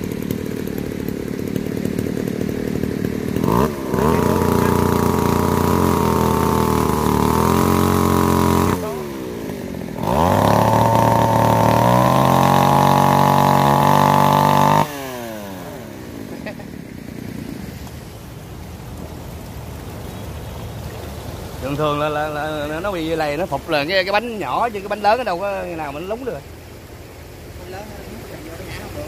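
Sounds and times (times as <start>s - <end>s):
chainsaw sawing wood: 0.0s - 17.9s.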